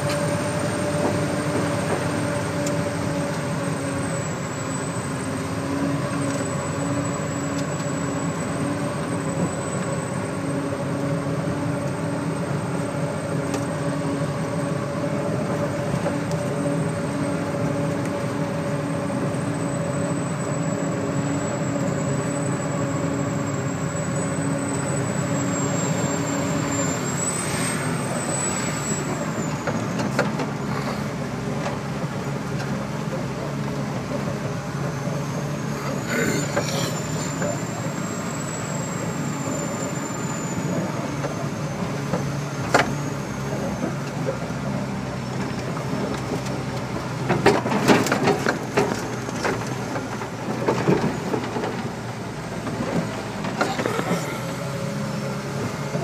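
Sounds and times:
diesel engine running: 0.0s - 56.0s.

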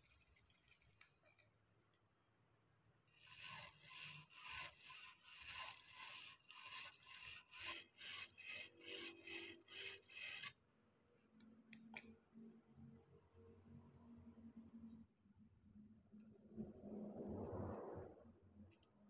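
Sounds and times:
wire brush scrubbing metal: 3.1s - 10.5s.

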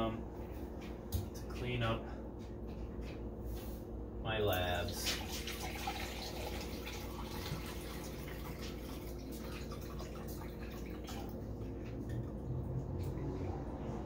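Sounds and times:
liquid trickling and dripping: 4.5s - 13.9s.

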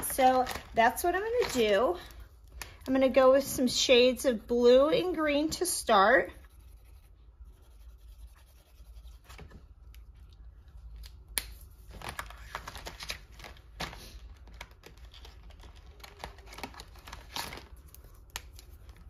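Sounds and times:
markers scratching and clicking: 6.4s - 9.6s.

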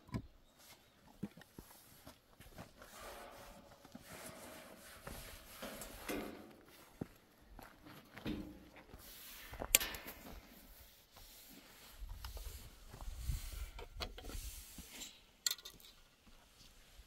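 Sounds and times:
rubbing and scraping: 1.7s - 6.7s.

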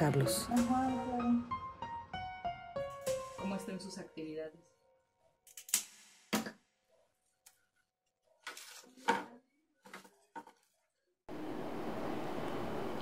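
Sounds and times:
objects knocking and clattering: 8.5s - 10.7s.

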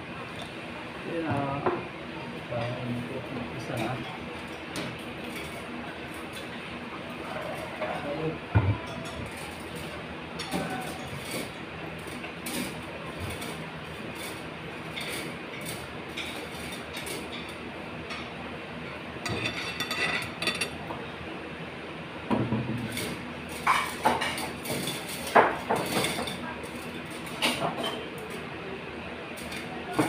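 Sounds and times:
cutlery and dishes clinking: 19.2s - 20.8s.

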